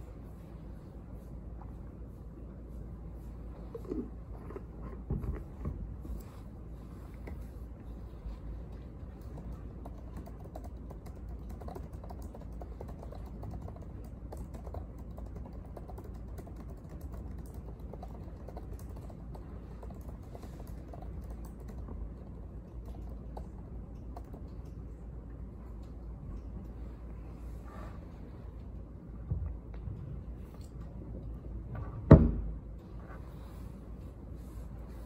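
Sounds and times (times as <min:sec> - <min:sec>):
low room hum: 0:00.0 - 0:35.0
laptop keyboard typing: 0:08.7 - 0:24.8.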